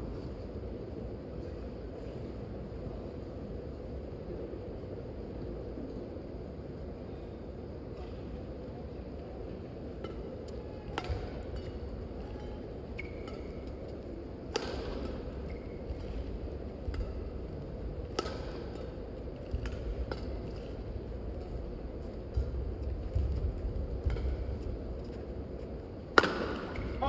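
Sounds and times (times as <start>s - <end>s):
low hall hum: 0.0s - 27.0s
racket hitting shuttlecock: 10.0s - 17.3s, 18.0s - 20.8s, 24.0s - 24.8s, 26.1s - 27.0s
court shoes squeaking: 11.0s - 16.3s.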